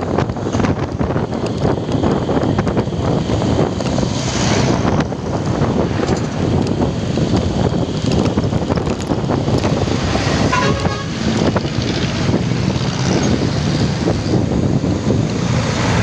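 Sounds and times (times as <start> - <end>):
traffic noise: 0.0 - 16.0
wind buffeting: 0.0 - 16.0
vehicle horn toot: 10.4 - 11.2.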